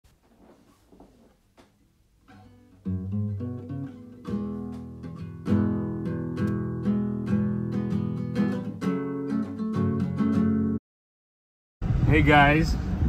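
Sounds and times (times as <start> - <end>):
acoustic guitar strumming chords: 2.2 - 10.8.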